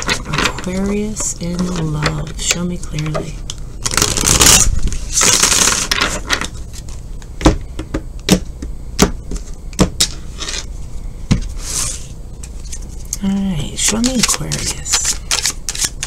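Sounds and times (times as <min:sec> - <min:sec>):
cards being shuffled: 0:11.6 - 0:16.0.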